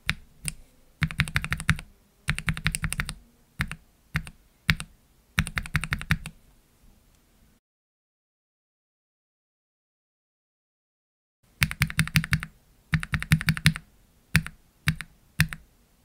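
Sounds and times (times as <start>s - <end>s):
mechanical keyboard typing: 0.0s - 6.4s, 11.6s - 13.8s, 14.4s - 15.6s.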